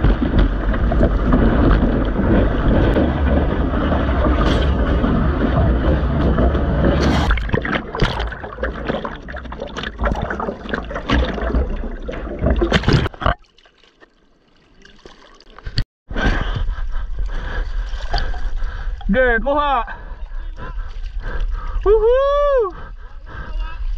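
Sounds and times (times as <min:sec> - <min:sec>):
sea water rushing and splashing: 0:00.0 - 0:15.7.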